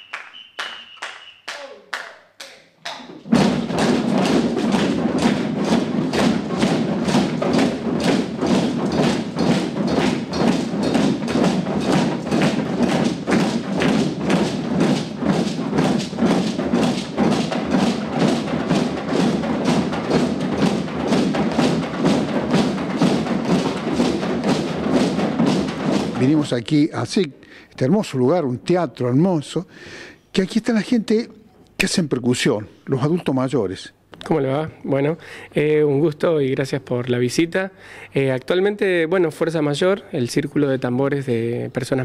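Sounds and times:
hand drums and bass drums: 3.2 - 26.6.

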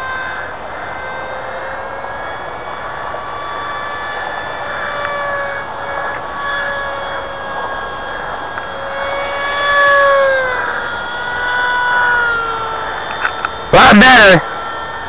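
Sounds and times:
model plane motor whining: 0.0 - 15.0.

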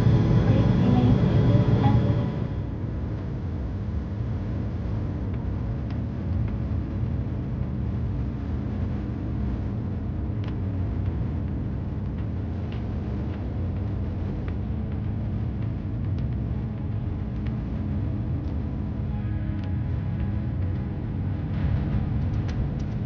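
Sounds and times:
airliner cabin engine rumble: 0.0 - 4.9.

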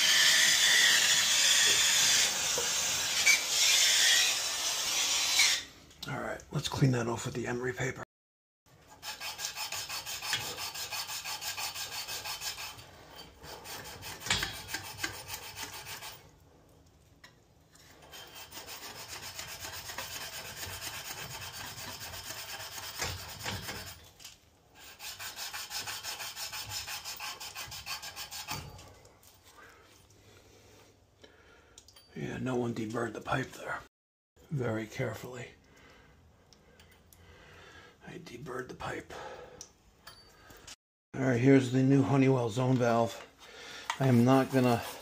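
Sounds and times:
emery cloth scraping copper pipe: 8.7 - 16.6, 17.2 - 31.0, 42.0 - 45.0.

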